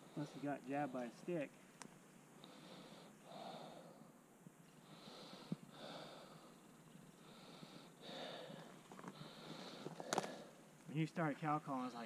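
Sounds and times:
person breathing: 2.4s - 4.2s, 4.8s - 10.7s.

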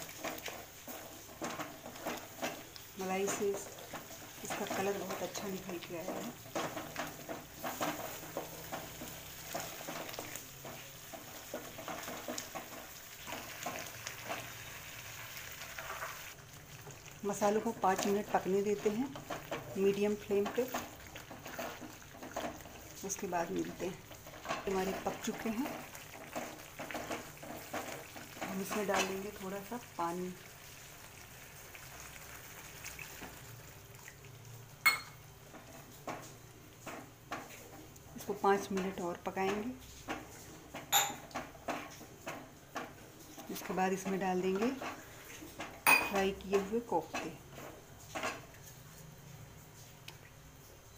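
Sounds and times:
wooden spatula scraping: 0.0s - 14.8s
gravy sizzling: 0.0s - 50.9s.

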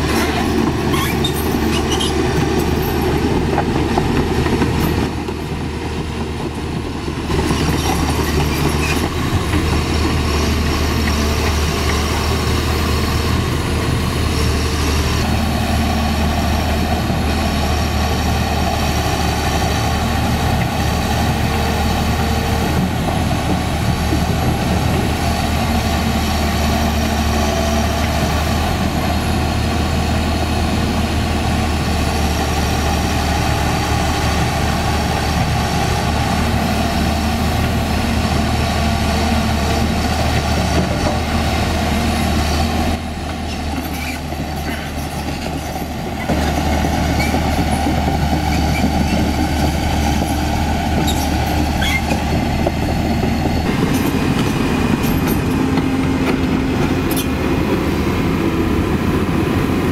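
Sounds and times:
diesel excavator engine humming: 0.0s - 59.9s.

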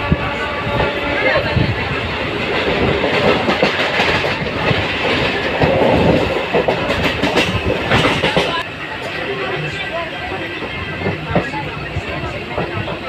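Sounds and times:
train rumble: 0.0s - 13.0s
train wheels clattering over rail joints: 2.3s - 8.6s.

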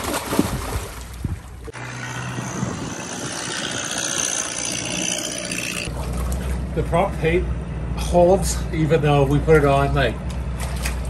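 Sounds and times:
water splashing: 0.0s - 2.7s, 5.6s - 6.8s, 10.2s - 11.0s.

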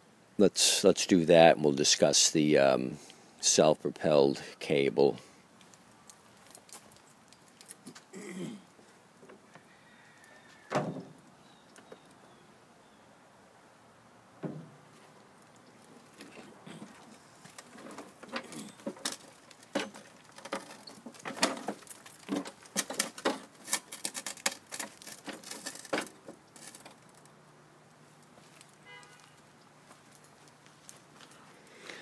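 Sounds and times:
lawn mower thump: 14.4s - 14.8s
mower parts clicking and rattling: 14.4s - 27.4s.

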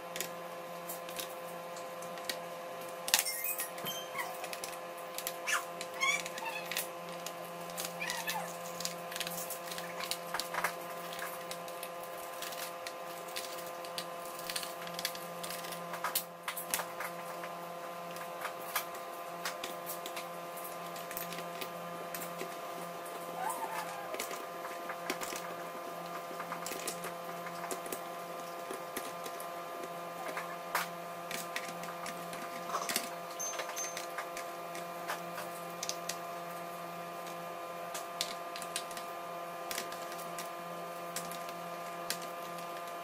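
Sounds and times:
short squeaks: 3.2s - 4.4s.

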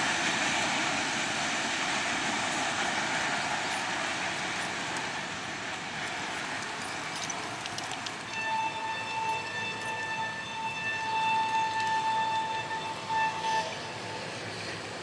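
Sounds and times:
freight train wagons rumbling: 0.0s - 15.0s
train horn blasts: 8.3s - 14.7s.

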